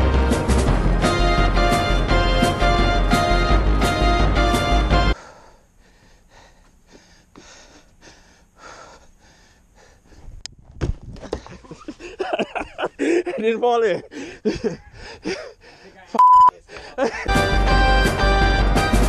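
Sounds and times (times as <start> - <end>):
person breathing heavily: 5.1 - 10.4, 14.0 - 17.3.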